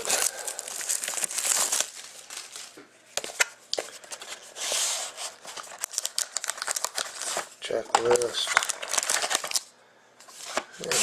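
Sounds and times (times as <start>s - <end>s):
plastic shrink-wrap crinkling: 0.0s - 2.8s, 5.2s - 9.7s.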